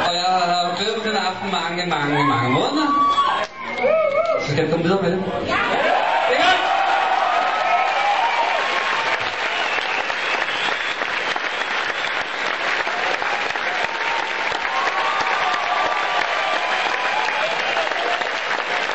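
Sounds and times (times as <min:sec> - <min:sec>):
audience applauding: 0:05.7 - 0:18.9.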